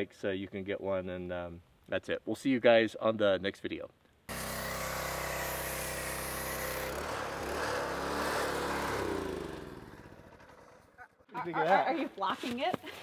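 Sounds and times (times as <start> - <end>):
small gasoline engine running: 4.3 - 11.0.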